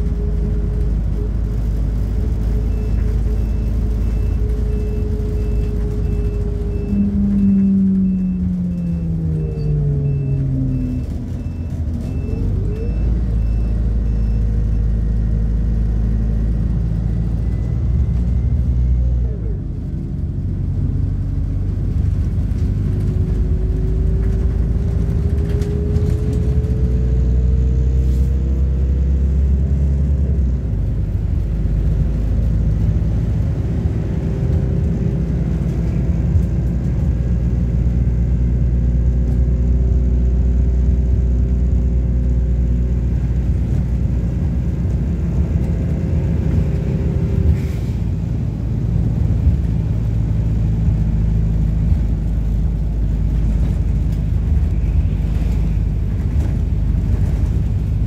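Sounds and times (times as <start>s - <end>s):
bus engine and road rumble: 0.0s - 58.0s.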